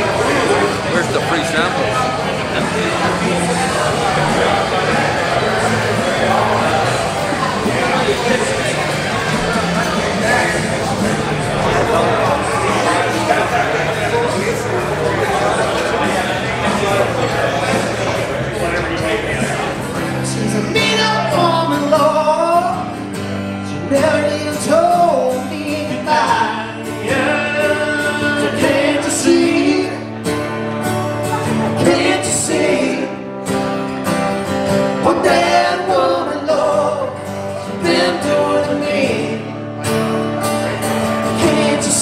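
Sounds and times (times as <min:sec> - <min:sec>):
acoustic guitars strummed: 0:00.0 - 0:42.0
man singing: 0:19.3 - 0:23.0, 0:23.6 - 0:30.3, 0:31.4 - 0:33.3, 0:35.0 - 0:39.6, 0:41.2 - 0:42.0.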